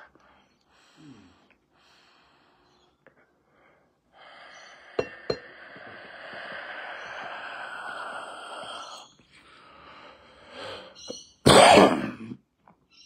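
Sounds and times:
breathy exhale of smoke: 3.6s - 11.0s
person inhaling from smoking device: 3.8s - 11.1s.

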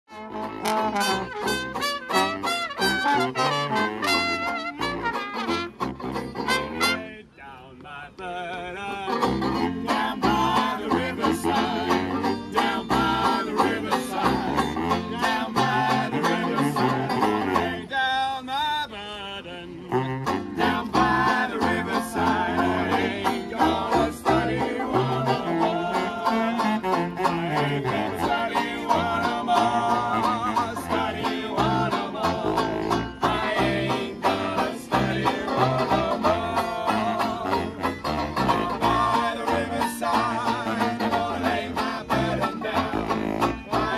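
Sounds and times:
banjo strumming: 0.1s - 7.1s, 9.0s - 17.8s, 20.2s - 43.9s
low saxophone line: 0.1s - 7.3s, 9.2s - 17.9s, 19.7s - 43.9s
person singing: 20.6s - 37.9s, 38.5s - 43.9s.

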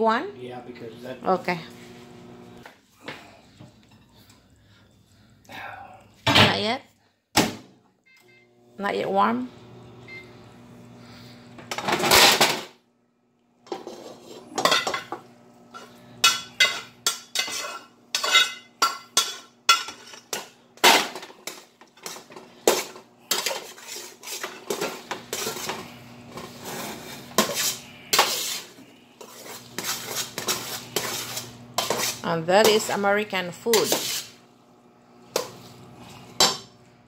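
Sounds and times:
spoon scraping metal pot: 13.7s - 15.1s, 15.8s - 20.4s, 21.4s - 33.0s, 33.7s - 34.4s.

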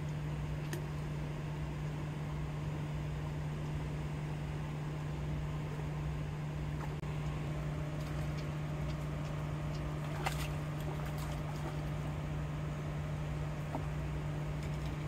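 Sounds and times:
low motor hum: 0.0s - 15.0s
fish splashing out of water: 9.7s - 12.1s.

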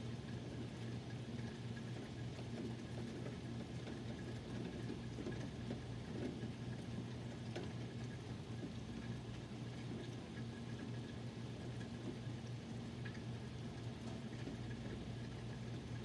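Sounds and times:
steady rain falling: 0.0s - 16.0s.

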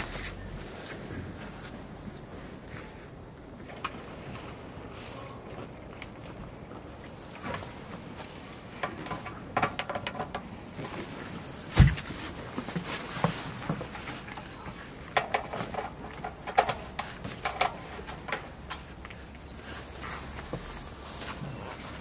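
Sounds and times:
dull thump: 11.7s - 12.2s.

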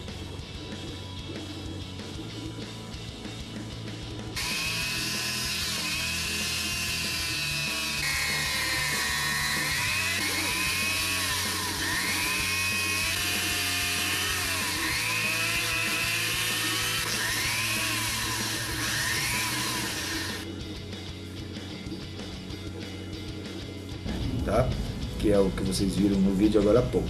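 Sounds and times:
rotary tool whining: 4.4s - 20.5s.

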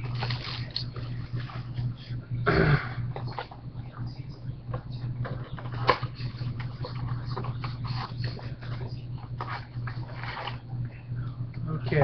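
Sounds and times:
packaging crackling and rustling: 0.0s - 1.1s
low electrical hum: 0.0s - 12.0s.

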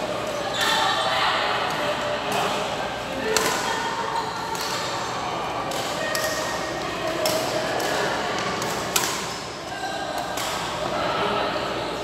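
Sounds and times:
sports hall background noise: 0.0s - 12.0s
rackets striking shuttlecock: 3.2s - 10.9s.

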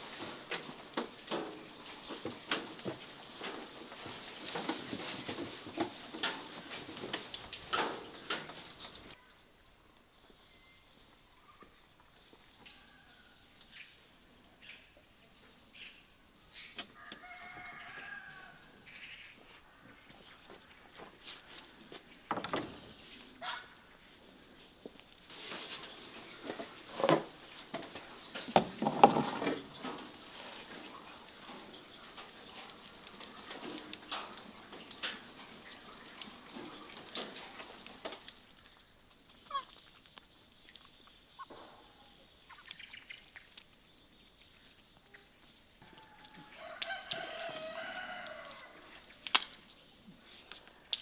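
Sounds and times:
rooster crowing: 17.0s - 18.7s, 45.8s - 48.9s.

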